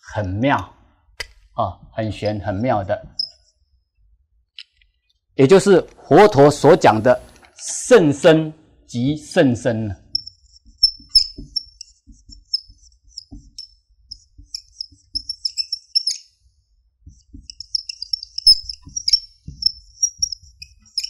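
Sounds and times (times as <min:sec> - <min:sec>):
marker squeaking on whiteboard: 0:02.0 - 0:03.6, 0:10.1 - 0:16.4, 0:17.0 - 0:21.0.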